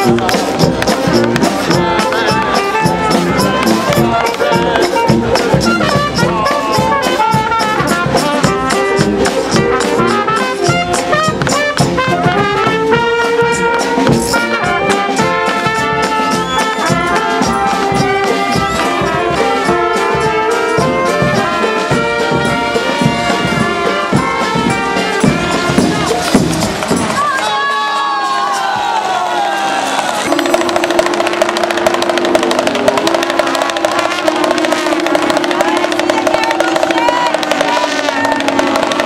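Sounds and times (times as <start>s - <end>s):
bass drum beat: 0.0s - 27.2s, 30.2s - 39.0s
marching brass band playing: 0.0s - 27.7s, 28.5s - 39.0s.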